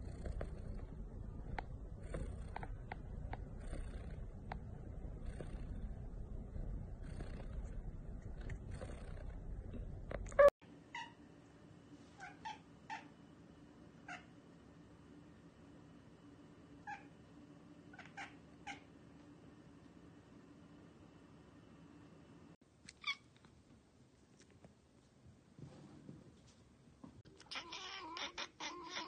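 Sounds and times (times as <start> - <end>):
cat chirping: 27.3 - 29.0
cat meowing: 27.4 - 29.0.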